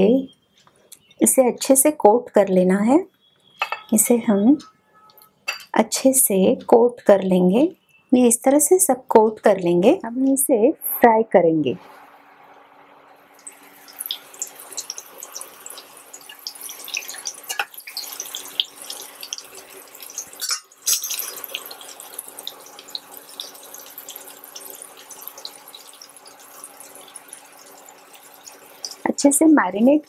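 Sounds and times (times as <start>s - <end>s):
chicken deep-frying in oil: 13.2s - 30.0s.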